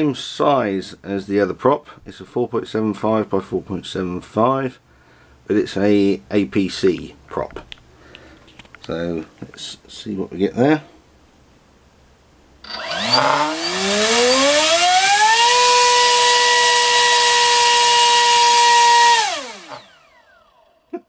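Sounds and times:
electric motor and propeller whine: 12.6 - 20.8.

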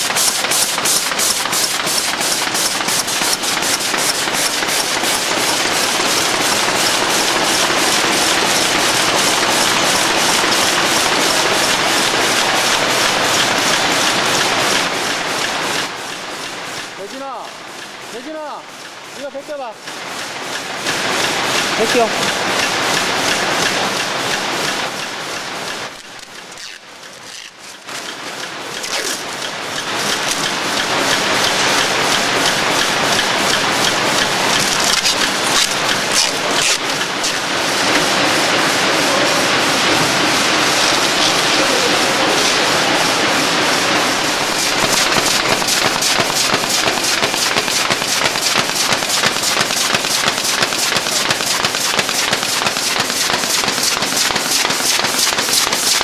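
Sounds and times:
machine mechanical clatter: 0.0 - 56.0.

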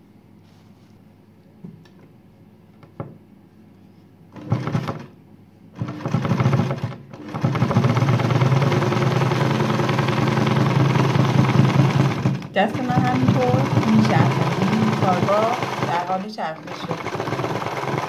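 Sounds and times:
sewing machine stitching: 4.3 - 5.1, 5.8 - 18.0.

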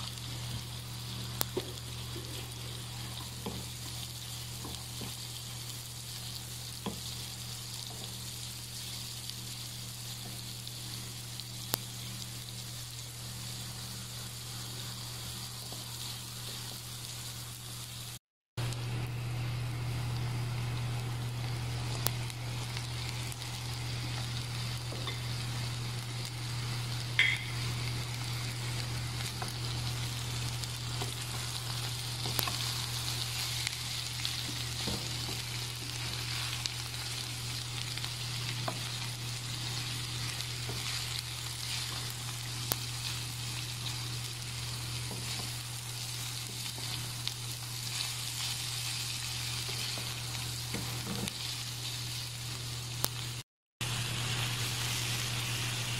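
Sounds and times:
food sizzling in a hot pan: 0.0 - 55.9.

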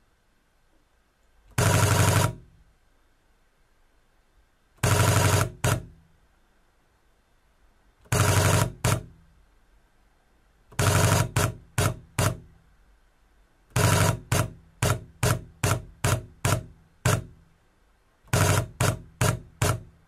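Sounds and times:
camera shutter rapid clicks: 1.6 - 2.4, 4.8 - 5.9, 8.1 - 9.1, 10.8 - 12.4, 13.8 - 17.3, 18.3 - 19.9.

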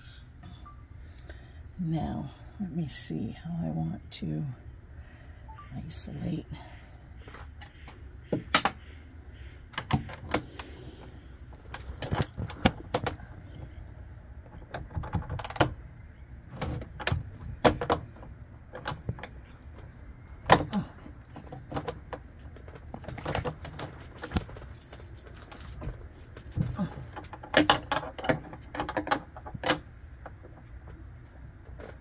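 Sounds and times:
clicks and knocks of handling cables: 9.7 - 13.7, 16.5 - 32.0.

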